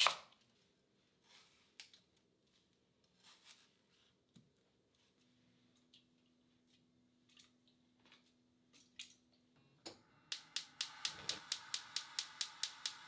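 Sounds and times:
gas flame hissing: 0:10.3 - 0:13.0
spark igniter clicking: 0:10.3 - 0:13.0.

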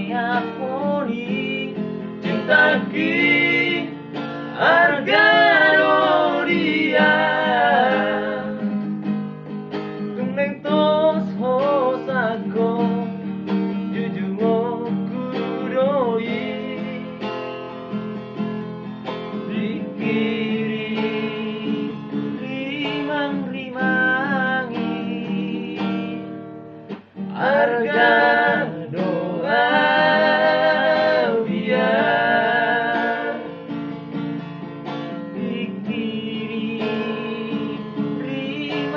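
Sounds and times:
men singing: 0:00.0 - 0:08.8, 0:10.2 - 0:13.2, 0:13.8 - 0:17.3, 0:19.3 - 0:26.3, 0:27.3 - 0:33.8, 0:35.1 - 0:38.9
strummed acoustic guitar: 0:00.0 - 0:38.9.

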